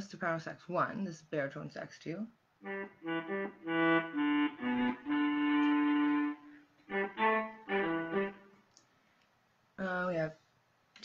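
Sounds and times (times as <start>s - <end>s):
electronic wind instrument notes: 2.6s - 8.6s.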